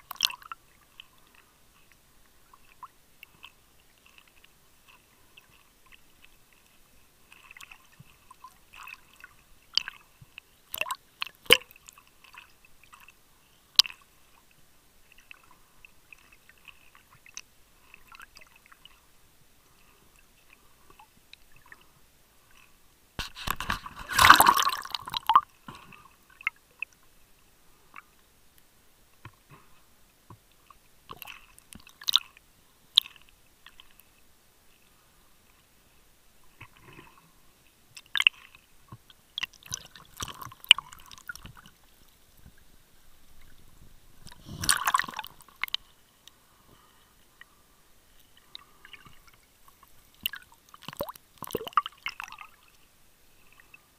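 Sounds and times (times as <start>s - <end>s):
underwater clicks and crackles: 0.0s - 19.1s, 22.5s - 27.1s, 27.9s - 34.2s, 36.4s - 37.2s, 37.9s - 47.5s, 48.2s - 52.9s
burst of water noise: 23.2s - 25.9s, 44.3s - 45.7s.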